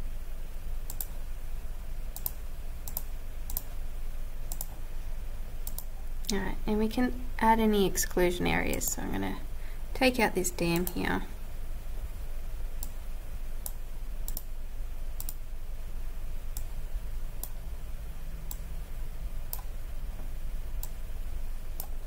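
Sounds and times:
low steady hum: 0.0s - 22.0s
computer mouse clicking: 0.9s - 1.2s, 2.1s - 3.8s, 4.5s - 4.8s, 5.6s - 6.0s, 10.7s - 11.0s, 13.6s - 14.5s, 15.2s - 15.4s, 16.5s - 16.7s, 21.8s - 22.0s.

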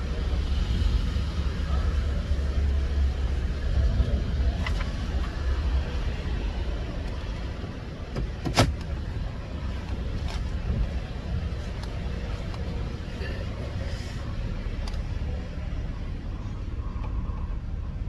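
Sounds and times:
van engine rumbling: 0.0s - 18.0s.

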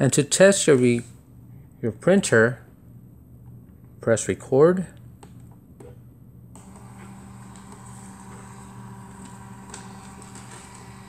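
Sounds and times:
printer motor whirring: 6.5s - 11.0s.

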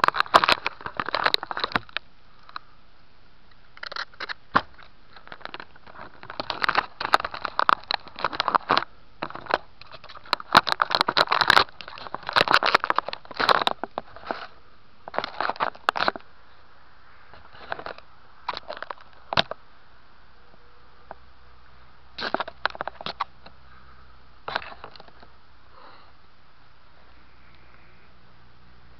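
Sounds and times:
fingers scraping camera case: 3.8s - 14.5s.

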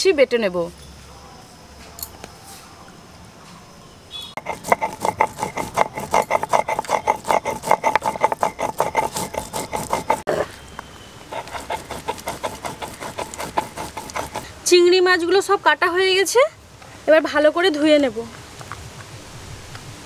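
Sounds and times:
stone grinder scraping seeds: 4.4s - 10.6s, 11.3s - 14.7s.

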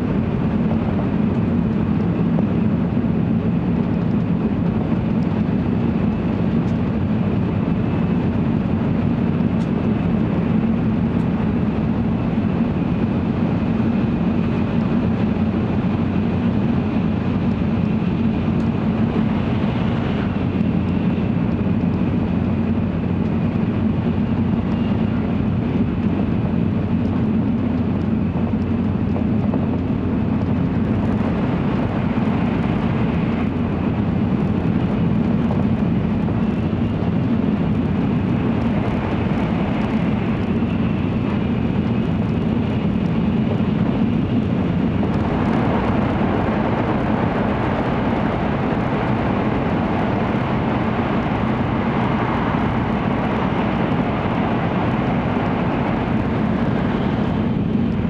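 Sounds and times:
train rumble inside cabin: 0.0s - 58.0s.

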